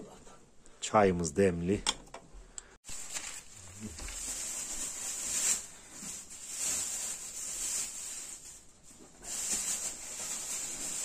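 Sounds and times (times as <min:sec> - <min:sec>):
plastic bag rustling: 0:02.8 - 0:11.0.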